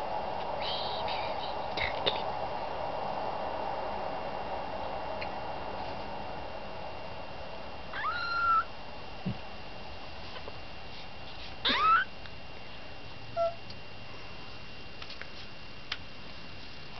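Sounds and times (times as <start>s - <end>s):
kitten mewing: 7.9s - 8.7s, 11.6s - 12.1s, 13.4s - 13.6s
kitten squeak: 8.0s - 8.7s, 11.7s - 12.1s, 13.4s - 13.6s.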